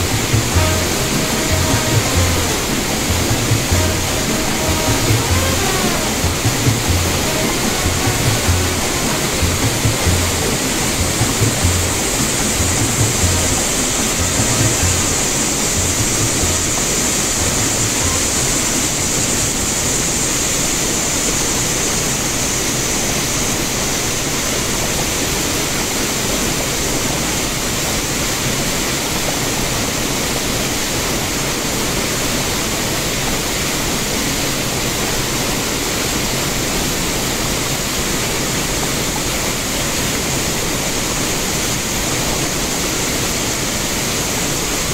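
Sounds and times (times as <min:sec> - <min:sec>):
low thumps: 0:00.0 - 0:18.5
river water rushing: 0:00.0 - 0:44.9.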